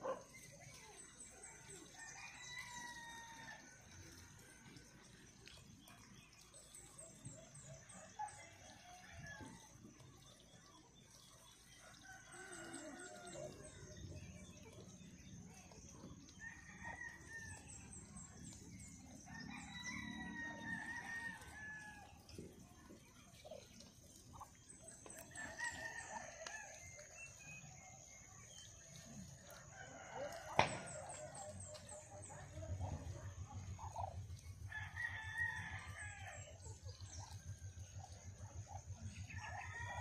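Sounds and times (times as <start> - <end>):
faint roosters crowing: 1.8 - 4.9, 7.8 - 10.1, 11.8 - 14.1, 16.1 - 22.4, 28.6 - 33.2, 33.8 - 38.1, 39.0 - 40.0.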